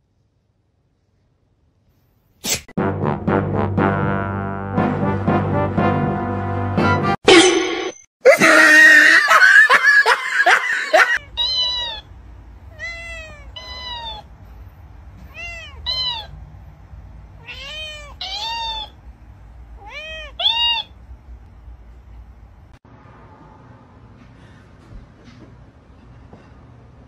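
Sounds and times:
cat meowing: 11.2s - 12.1s, 12.7s - 14.3s, 15.3s - 16.4s, 17.4s - 19.0s, 19.8s - 21.0s.

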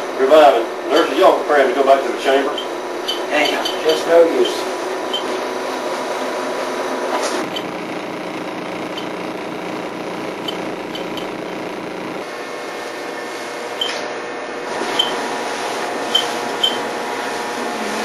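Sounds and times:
small motor running: 7.4s - 12.3s, 14.8s - 18.0s.

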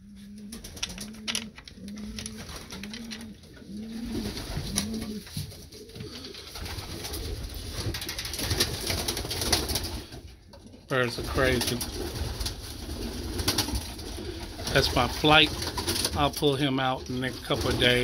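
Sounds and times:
pigeons cooing: 0.0s - 18.0s
clicks and knocks: 0.6s - 3.4s.

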